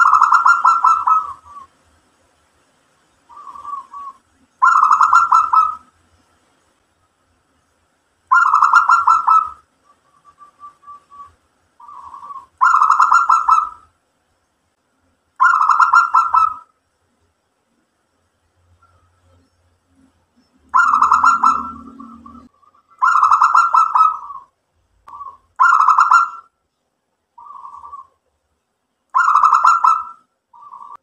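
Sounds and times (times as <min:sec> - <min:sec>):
dove cooing: 0:00.0 - 0:01.7, 0:03.3 - 0:05.9, 0:08.3 - 0:09.6, 0:10.2 - 0:13.8, 0:15.4 - 0:16.7, 0:20.7 - 0:24.5, 0:25.1 - 0:26.4, 0:27.4 - 0:28.2, 0:29.2 - 0:31.0.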